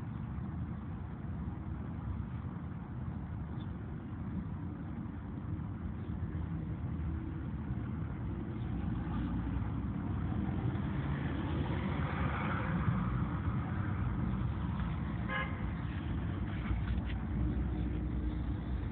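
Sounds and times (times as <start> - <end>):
road traffic rumble: 0.0 - 18.9
vehicle passing: 8.7 - 18.9
car horn toot: 15.3 - 15.6.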